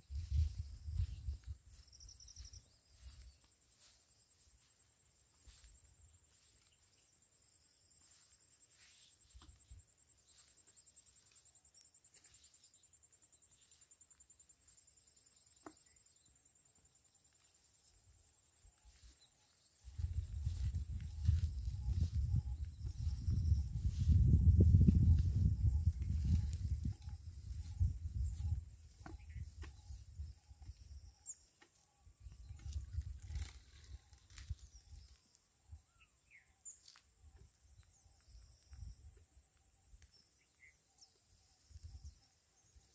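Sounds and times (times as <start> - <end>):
insect trill: 0.0 - 42.9
birds chirping and whistling: 19.8 - 30.1.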